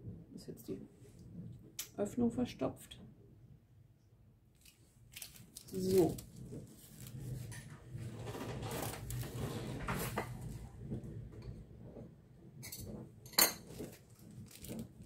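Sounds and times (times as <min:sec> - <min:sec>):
kitchenware clinking: 0:12.6 - 0:13.9.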